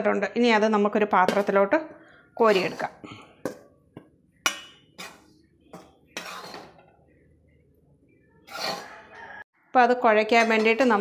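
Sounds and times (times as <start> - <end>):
metal utensil clinking on steel pan: 1.2 - 1.8, 4.4 - 6.9, 10.3 - 11.0.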